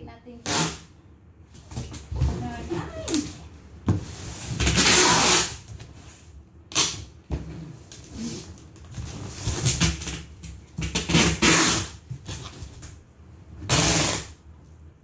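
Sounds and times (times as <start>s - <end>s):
packing tape pulled off roll: 0.4s - 0.9s, 4.4s - 5.9s, 6.7s - 7.2s, 7.8s - 13.0s, 13.6s - 14.4s.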